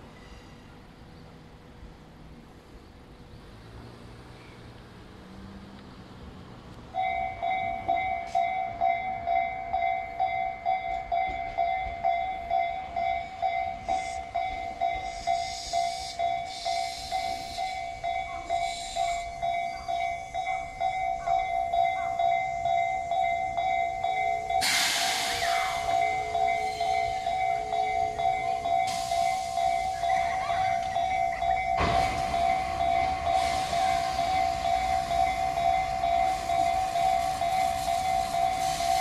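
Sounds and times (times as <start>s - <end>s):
electric train passing: 0.0s - 39.0s
level crossing warning bell: 6.8s - 39.0s
hissing bursts: 24.6s - 27.2s.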